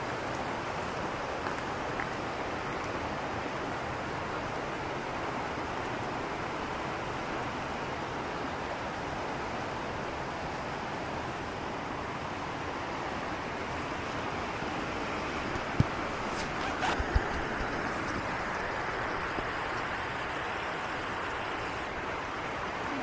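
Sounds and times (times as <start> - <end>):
river rushing over rocks: 0.0 - 23.0.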